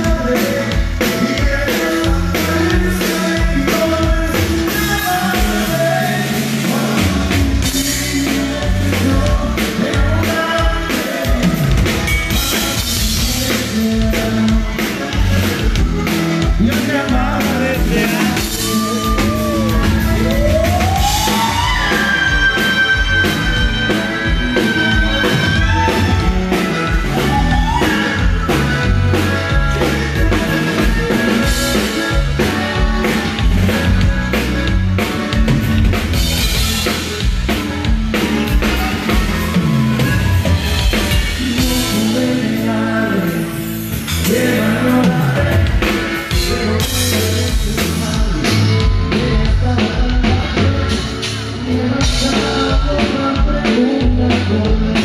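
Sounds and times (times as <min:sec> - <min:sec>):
drum kit steady beat: 0:00.0 - 0:55.0
live band music through a pa: 0:00.0 - 0:55.0
person singing: 0:00.0 - 0:55.0
high sliding lead note: 0:18.0 - 0:33.4.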